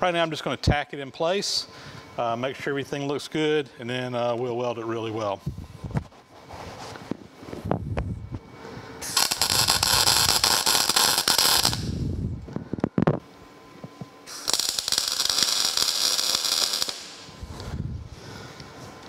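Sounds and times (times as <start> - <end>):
welder arc crackling: 9.0 - 13.2, 14.2 - 17.8.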